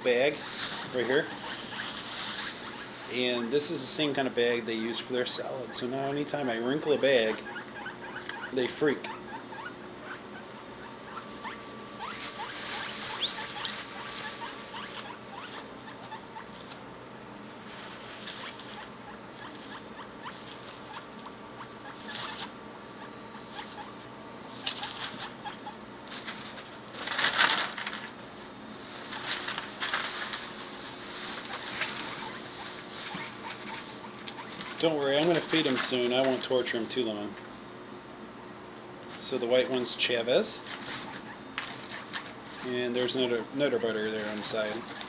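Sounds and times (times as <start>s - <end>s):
scurrying in wood shavings: 0.0s - 7.4s, 11.1s - 16.8s, 17.5s - 21.0s, 26.0s - 37.4s, 39.1s - 45.0s
guinea pigs wheeking: 0.0s - 16.8s, 17.5s - 37.4s, 39.1s - 45.0s
plastic bag crinkling: 26.1s - 28.1s, 28.8s - 36.5s.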